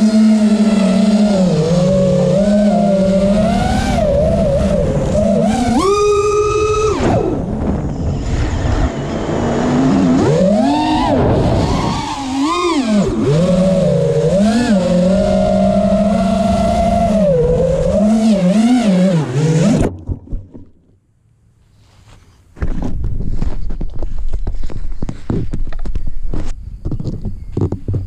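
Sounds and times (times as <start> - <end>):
quadcopter motors whining: 0.0 - 19.9
rustling in grass: 21.7 - 25.6.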